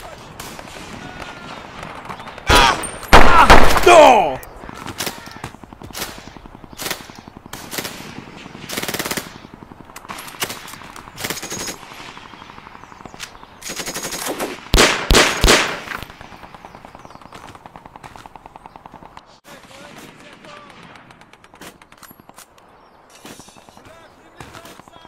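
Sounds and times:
gunshots and short bursts: 0.0 - 12.6, 13.5 - 22.4
distant machine-gun fire: 4.6 - 12.8, 13.6 - 22.4.

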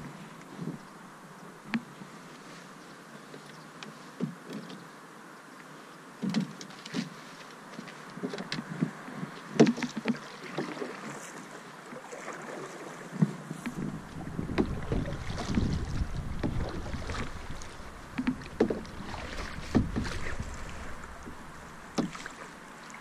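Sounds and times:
paddle splashing in water: 6.2 - 23.0
paddle knocking against hull: 9.6 - 11.0, 13.1 - 22.6.

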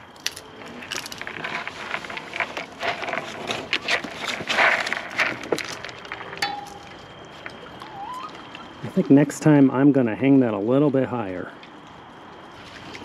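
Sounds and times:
claws scraping cardboard tube: 0.6 - 6.1
animals rustling: 0.6 - 10.9.

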